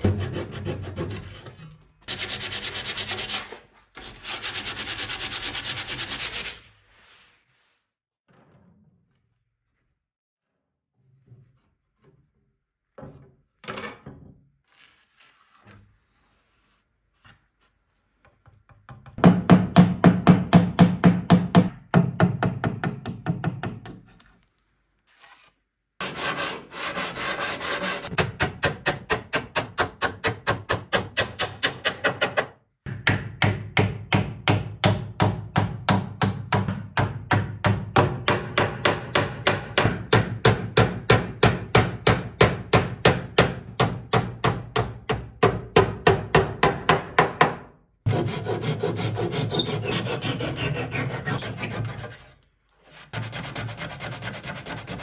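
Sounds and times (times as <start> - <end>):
wood being rubbed by hand: 2.1 - 8.0, 26.0 - 28.1, 48.1 - 55.0.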